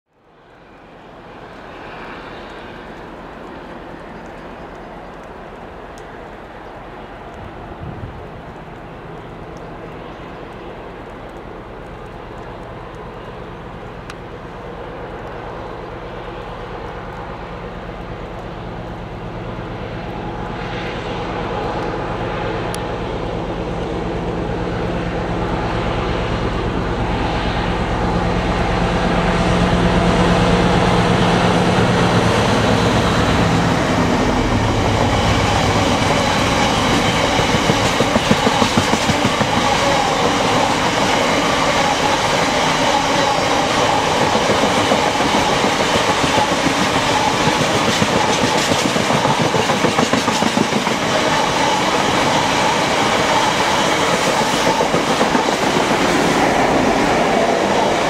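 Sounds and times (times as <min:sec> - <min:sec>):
diesel locomotive engine drone: 0:00.1 - 0:58.0
wheels clacking over rail joints: 0:32.3 - 0:58.0.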